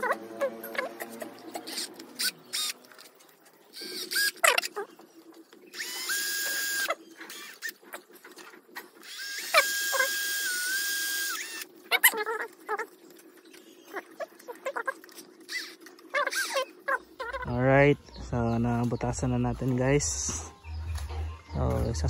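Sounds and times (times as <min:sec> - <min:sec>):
cordless drill drilling plastic: 0:01.7 - 0:02.8, 0:03.7 - 0:04.7, 0:05.8 - 0:07.8, 0:09.0 - 0:11.7.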